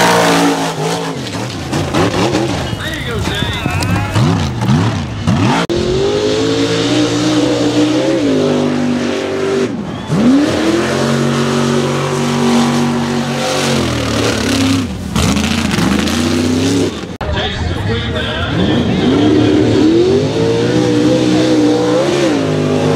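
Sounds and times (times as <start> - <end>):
truck engine at high revs: 0.0 - 22.9.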